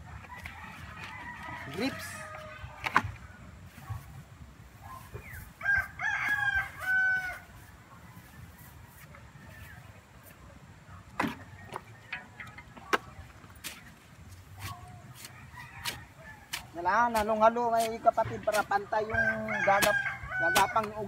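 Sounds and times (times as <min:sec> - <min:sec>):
rooster crowing: 0:00.3 - 0:02.8, 0:05.6 - 0:07.7, 0:15.2 - 0:16.6, 0:19.1 - 0:21.0.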